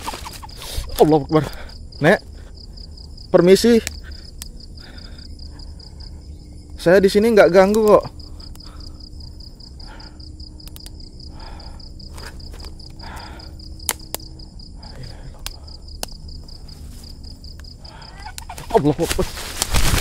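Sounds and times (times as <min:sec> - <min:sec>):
cricket trilling: 0:00.0 - 0:20.0
sharp clicks: 0:07.6 - 0:08.7, 0:10.6 - 0:11.0, 0:12.8 - 0:14.4.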